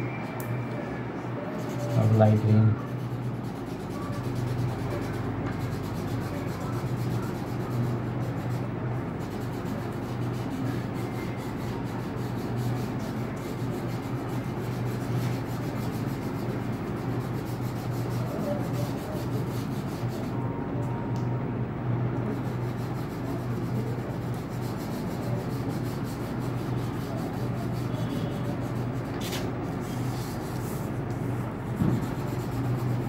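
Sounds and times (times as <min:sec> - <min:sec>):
steady low hum: 0:00.0 - 0:33.0
crayon rubbing on paper: 0:01.5 - 0:20.4, 0:22.3 - 0:33.0.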